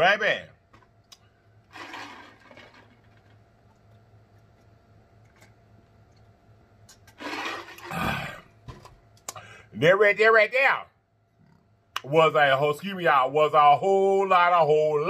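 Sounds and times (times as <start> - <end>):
man exhaling loudly: 7.8 - 8.5
man breathing: 9.3 - 9.8.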